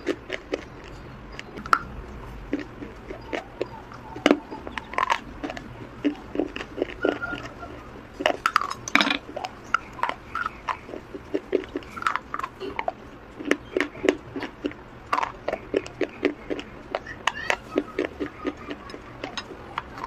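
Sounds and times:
crisp crunching and chewing: 0.0 - 20.0.

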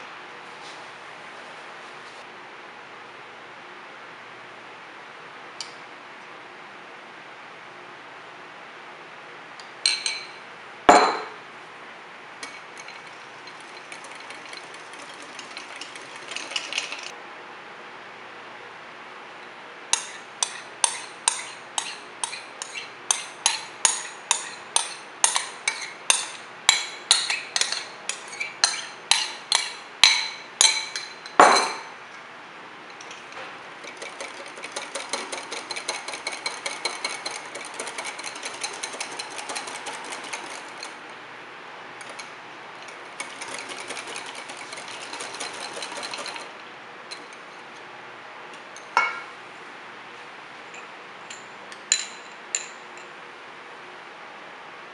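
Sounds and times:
spoon clinking on bowl: 9.8 - 11.3, 20.0 - 31.9
whisk clinking against glass bowl: 9.8 - 11.3, 12.4 - 17.1, 20.0 - 31.7, 33.8 - 41.0, 42.0 - 46.5.

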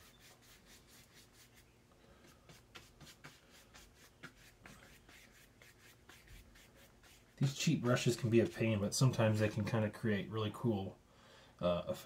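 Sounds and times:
paintbrush strokes on paper: 0.0 - 9.6.

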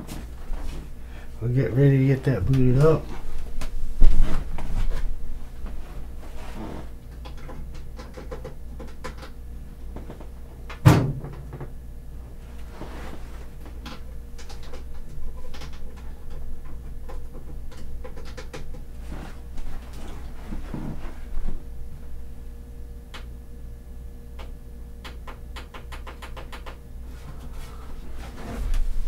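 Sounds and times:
steady low hum: 0.0 - 29.0
small clicks and knocks: 7.1 - 11.7, 13.7 - 18.8, 24.4 - 26.8
loud thump: 10.8 - 11.3.

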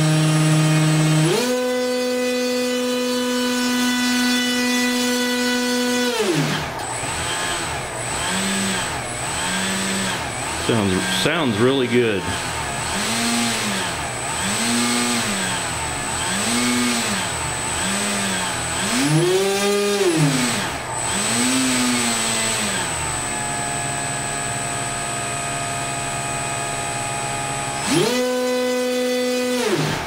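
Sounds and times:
electric motor propeller whine: 0.0 - 30.0
man talking: 10.6 - 12.4.

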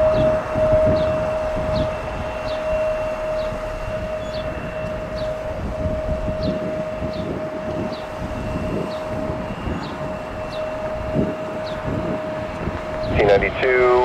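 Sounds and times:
distant jet airliner engine: 0.0 - 14.0.

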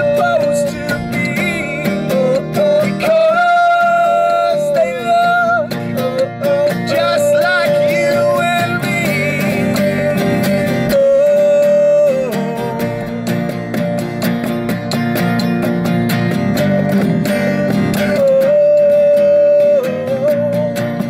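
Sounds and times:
voices singing in harmony: 0.0 - 13.1
strummed acoustic guitar: 0.0 - 21.0
electric bass: 4.5 - 18.7.

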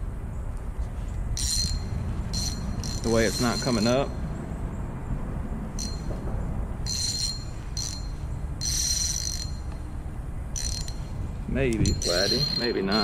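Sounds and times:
fishing reel ringing: 1.4 - 4.2, 5.7 - 6.1, 6.8 - 9.8, 10.5 - 11.2, 11.8 - 13.0.

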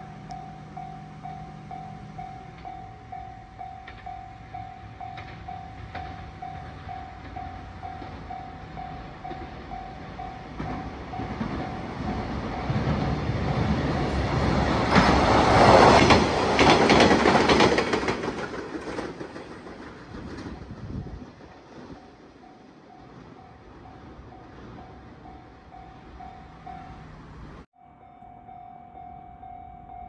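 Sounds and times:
level-crossing warning bell: 0.0 - 15.9, 21.8 - 30.0
diesel railcar passing: 0.0 - 30.0
wheel clicks over rail joints: 5.0 - 8.4, 14.9 - 22.0.

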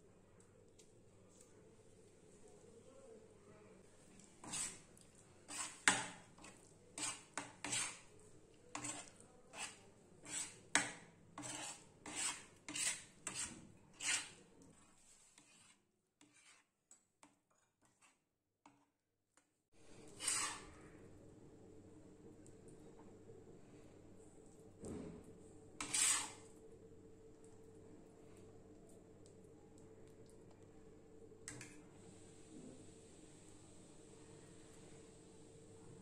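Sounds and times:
metal spatula scraping griddle: 4.4 - 4.8, 5.5 - 8.1, 8.7 - 14.4, 15.0 - 16.7, 20.0 - 20.8, 25.8 - 26.5.

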